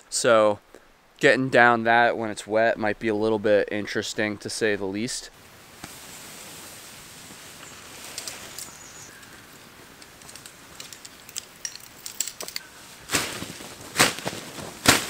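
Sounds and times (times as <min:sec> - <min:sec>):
tent fabric rustling: 0:05.4 - 0:15.0
small clicks: 0:10.0 - 0:12.6
fabric flapping whooshes: 0:13.0 - 0:15.0.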